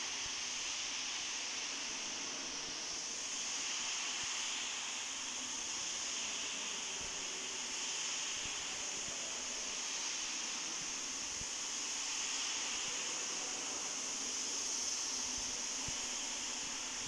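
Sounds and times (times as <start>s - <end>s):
room tone hiss: 0.0s - 17.0s.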